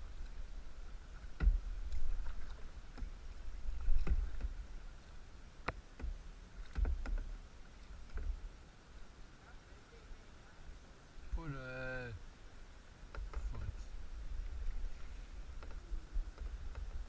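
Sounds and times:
wind rumble on microphone: 0:00.0 - 0:07.4, 0:13.1 - 0:17.0
paddles splashing and knocking: 0:00.0 - 0:08.6, 0:13.0 - 0:17.0.

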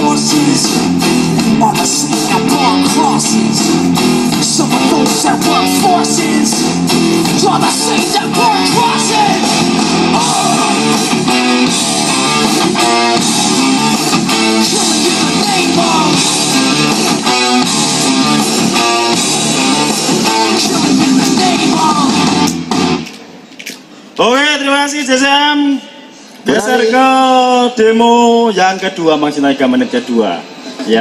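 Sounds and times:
loud guitar music over speakers: 0:00.0 - 0:23.4.

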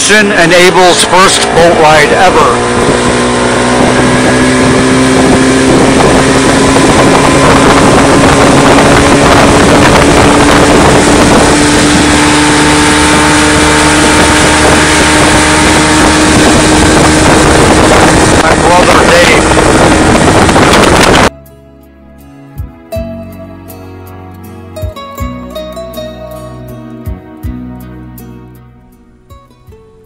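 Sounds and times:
outboard motor humming: 0:00.0 - 0:21.3.

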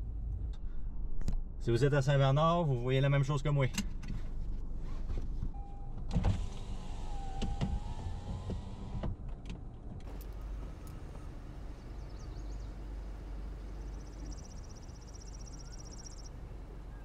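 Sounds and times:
outdoor background noise: 0:00.0 - 0:17.0
electric window motor whining: 0:06.1 - 0:09.1.

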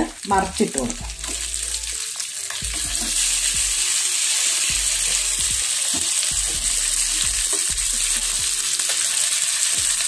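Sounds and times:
fish sizzling in oil: 0:00.0 - 0:10.0
spoon knocking and scraping pan: 0:01.0 - 0:01.8, 0:02.5 - 0:08.7.

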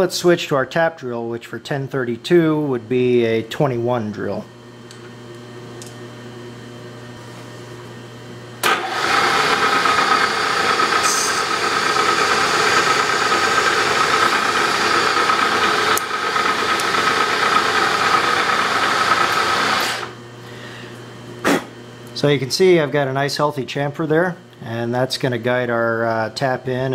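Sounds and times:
milling machine spindle hum: 0:02.5 - 0:21.3
drill cutting into metal: 0:08.6 - 0:20.2.

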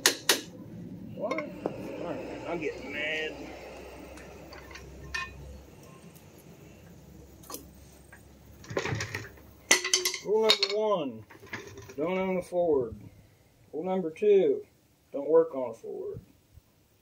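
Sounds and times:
metal scrape: 0:01.2 - 0:10.7
metal brake parts clinking: 0:04.5 - 0:05.6, 0:08.6 - 0:12.0.

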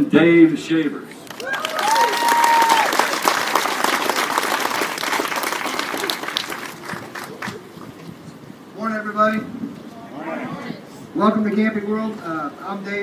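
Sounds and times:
audience applauding: 0:01.2 - 0:07.6.

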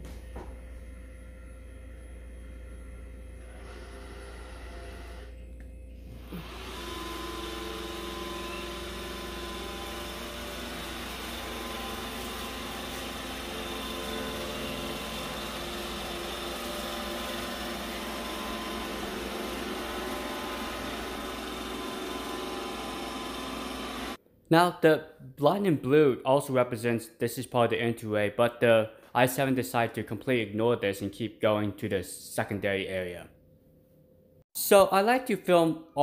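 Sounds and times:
robot vacuum whirring: 0:06.2 - 0:24.2.

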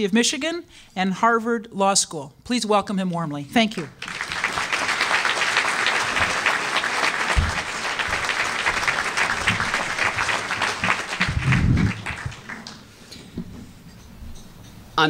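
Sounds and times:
audience applauding: 0:03.8 - 0:13.0
low thumps: 0:11.2 - 0:12.4.

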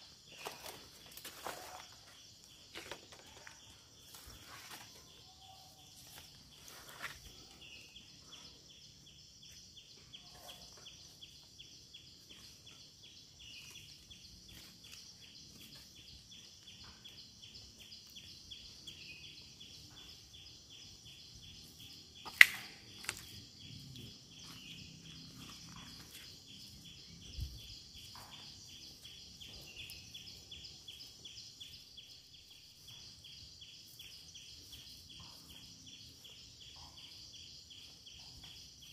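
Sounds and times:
high-pitched insect chorus: 0:00.0 - 0:38.9
sharp snap: 0:22.3 - 0:23.2.

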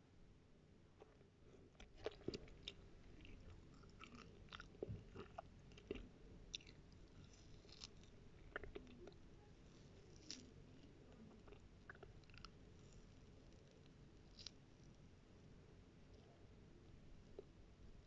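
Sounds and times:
faint low hum: 0:00.0 - 0:18.0
soft clicks and crackles: 0:01.0 - 0:15.0.

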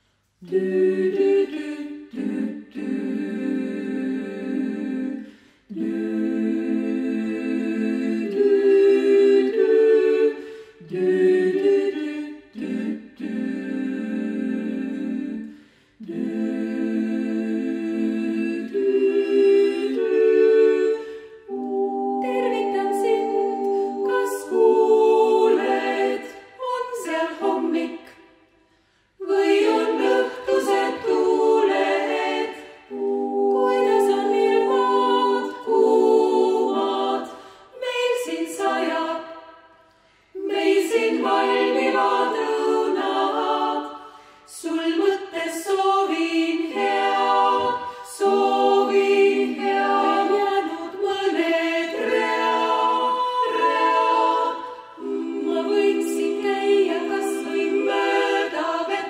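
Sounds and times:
vocal ensemble singing a cappella: 0:00.0 - 0:59.0
singers breathing: 0:05.2 - 0:05.7, 0:10.4 - 0:10.9, 0:15.4 - 0:16.0, 0:21.0 - 0:21.4, 0:28.2 - 0:29.2, 0:37.3 - 0:37.8, 0:39.7 - 0:40.4, 0:43.9 - 0:44.5, 0:47.8 - 0:48.1.

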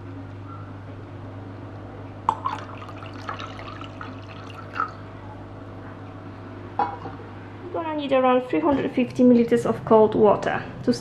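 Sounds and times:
water pouring into a glass jug: 0:02.3 - 0:05.0.

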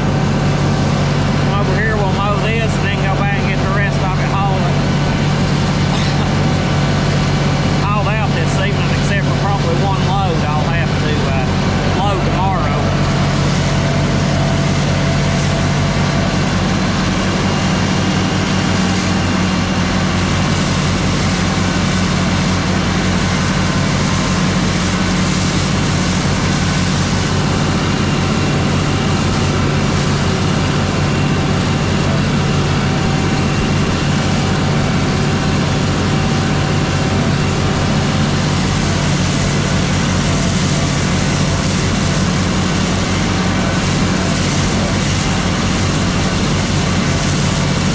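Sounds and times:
tractor diesel engine running: 0:00.0 - 0:47.9.

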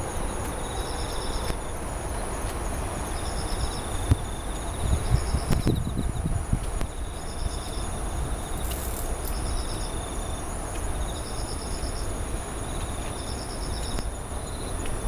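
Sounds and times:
insects chirping in short trills: 0:00.0 - 0:15.0
high-pitched insect buzz: 0:08.5 - 0:10.2.

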